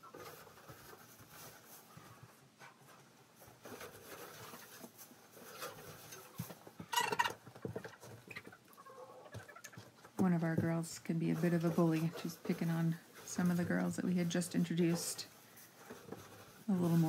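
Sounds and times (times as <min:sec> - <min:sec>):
dry straw rustling: 0:10.3 - 0:17.0.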